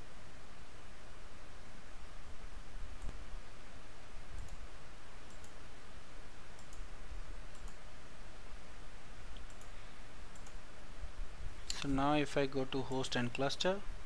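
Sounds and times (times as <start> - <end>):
low background hum: 0.0 - 14.0
computer mouse clicking: 4.4 - 4.6, 5.3 - 5.6, 6.6 - 6.9, 7.5 - 7.8, 9.3 - 10.6.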